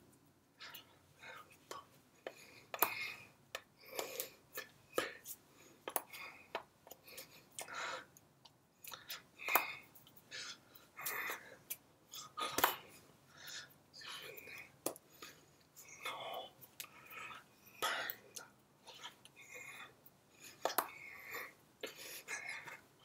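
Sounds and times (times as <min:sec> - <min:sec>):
breathy puffs and lip smacks: 0:00.6 - 0:08.2.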